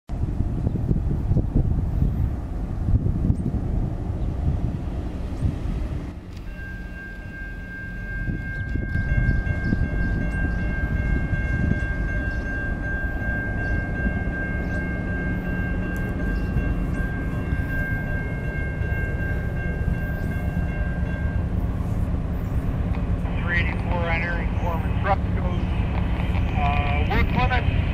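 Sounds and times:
train rumble: 0.1 - 27.9
crossing warning bell ringing: 6.1 - 27.9.

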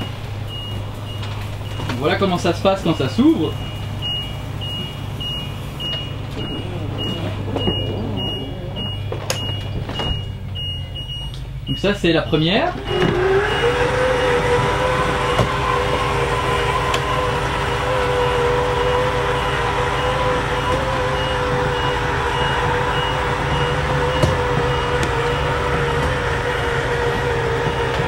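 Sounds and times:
engine idling: 0.0 - 28.0
faint high beeps: 2.9 - 11.9
electric motor whining: 6.1 - 10.0, 12.8 - 28.0.

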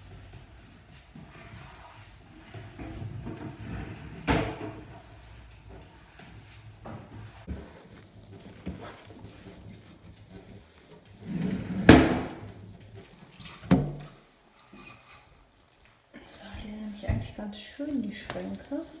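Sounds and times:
drawer sliding: 11.2 - 12.5.

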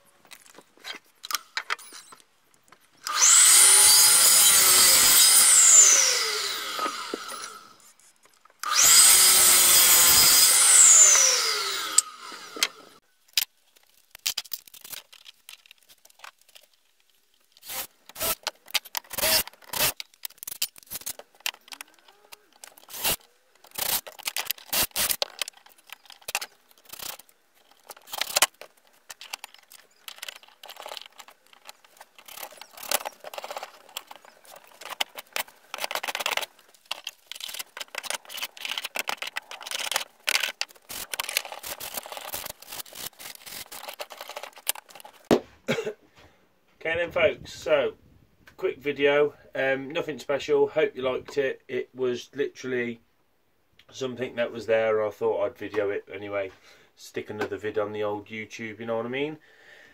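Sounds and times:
mitre saw cutting wood: 3.1 - 7.8, 8.6 - 13.0, 17.6 - 18.4, 19.1 - 20.0, 22.8 - 25.2, 32.2 - 44.6
saw blade spinning down: 3.1 - 7.8, 8.6 - 13.0.

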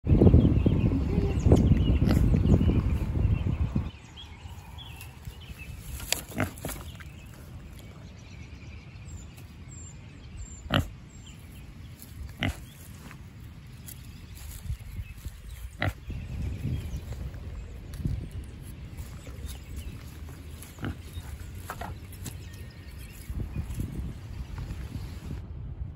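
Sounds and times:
pig rooting in dry leaves: 4.4 - 8.2, 10.6 - 25.4.

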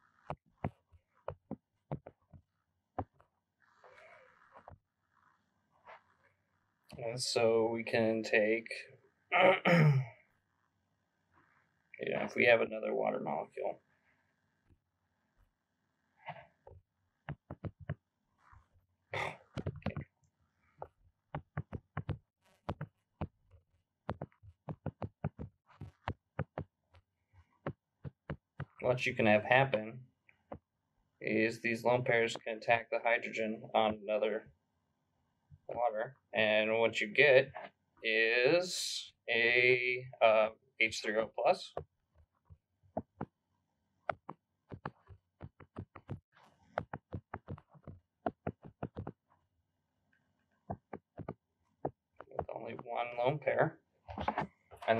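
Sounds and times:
stylus tapping on tablet screen: 0.3 - 2.4, 17.3 - 18.0, 19.5 - 20.1, 21.3 - 23.4, 24.1 - 26.7, 27.6 - 28.8, 44.1 - 49.2, 50.7 - 52.5.

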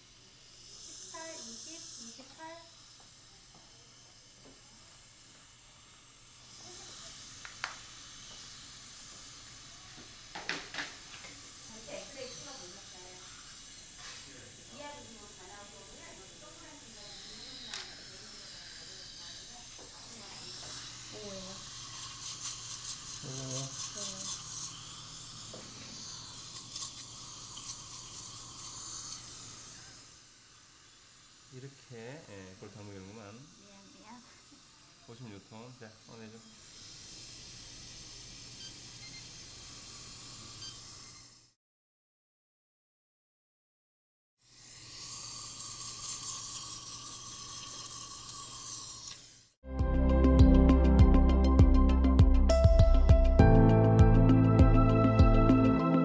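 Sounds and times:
steady hiss: 0.0 - 41.6.

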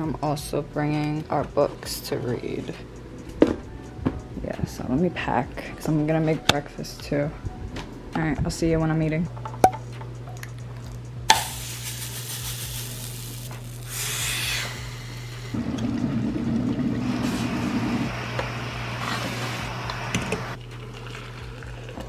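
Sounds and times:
kettle water heating hiss: 11.3 - 20.6.

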